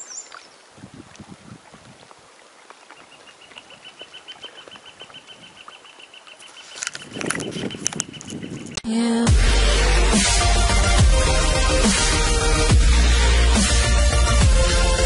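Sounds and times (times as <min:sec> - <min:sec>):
paddle splashing in water: 0:00.0 - 0:08.3.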